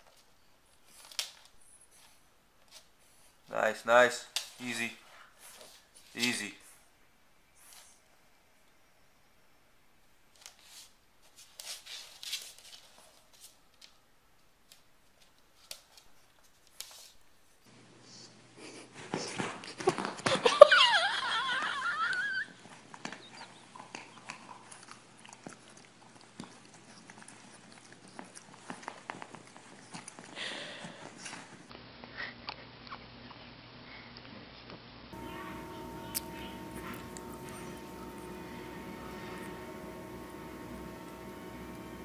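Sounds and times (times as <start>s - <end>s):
faint clicks and rustles: 0.0s - 3.5s, 10.3s - 17.7s, 22.6s - 42.0s
puppy whining: 21.6s - 24.9s.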